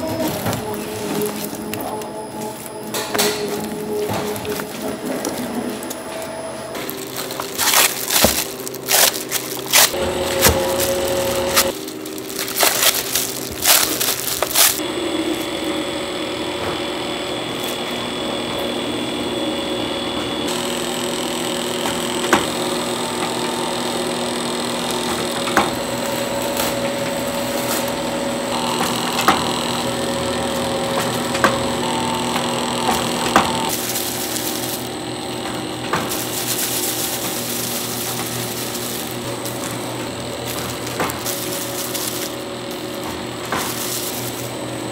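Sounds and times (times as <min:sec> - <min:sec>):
mixer machine hum: 0:00.0 - 0:44.9
mixer clicking: 0:02.8 - 0:14.8, 0:20.1 - 0:44.9
pounding machine knocking dough: 0:07.4 - 0:11.8, 0:20.1 - 0:44.9.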